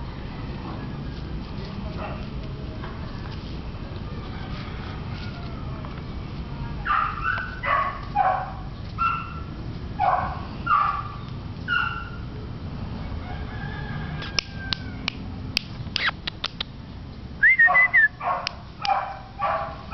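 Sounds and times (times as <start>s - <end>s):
puppy squealing yelp: 11.7s - 12.2s, 17.4s - 18.2s
puppy yipping and whining: 11.7s - 12.2s, 17.4s - 18.2s
short sharp ticks: 14.3s - 16.7s.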